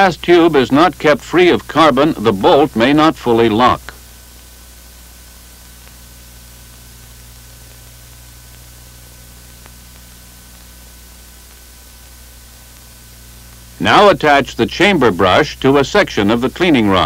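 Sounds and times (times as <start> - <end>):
film soundtrack hiss and hum: 0.0 - 17.0
faint clicks: 5.7 - 6.1, 6.8 - 11.8, 12.6 - 13.7.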